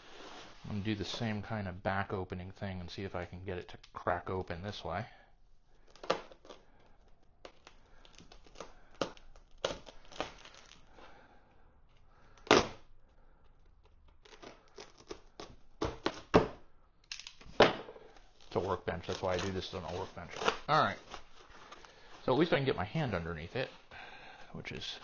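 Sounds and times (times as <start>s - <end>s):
foam packaging crackling: 5.7s - 11.2s, 17.2s - 23.6s.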